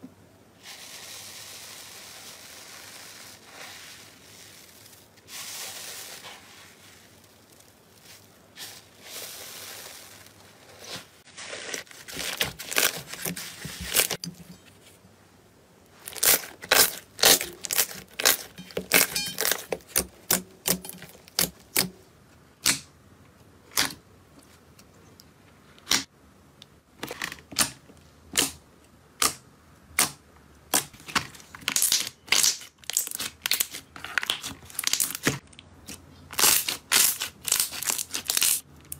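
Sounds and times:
hands squeezing slime: 16.0s - 20.0s, 31.8s - 38.6s.

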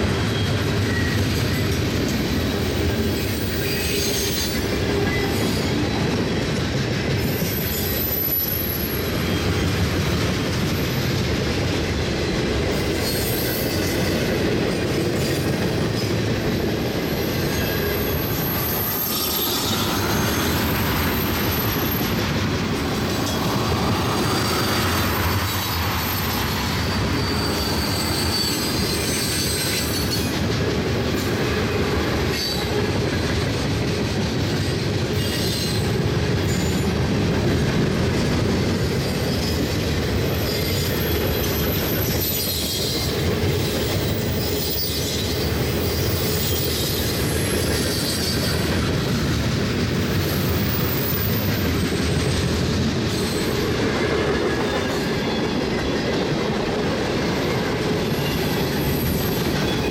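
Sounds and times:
train wheels rumbling on rail: 0.0s - 59.9s
high-pitched wheel squeals: 3.0s - 5.8s, 17.0s - 22.2s, 23.2s - 30.4s, 40.3s - 48.8s.

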